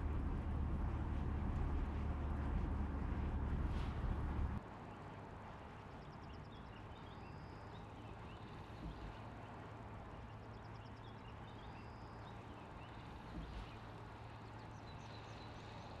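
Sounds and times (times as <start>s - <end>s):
soft low thumps: 0.0s - 4.6s.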